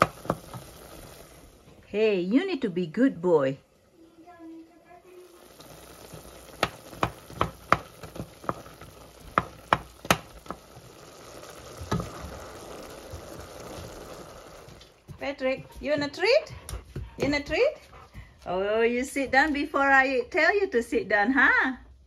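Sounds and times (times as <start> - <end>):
noodles bubbling in boiling water: 0.0 - 2.0, 5.0 - 15.1
wooden utensil knocking on pot: 6.6 - 10.6.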